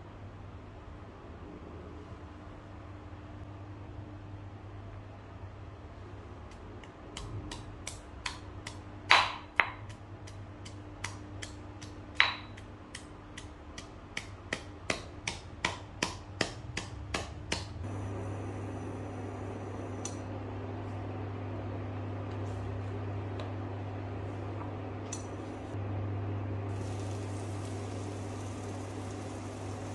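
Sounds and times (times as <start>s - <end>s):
stone pestle pounding in mortar: 7.2s - 17.7s.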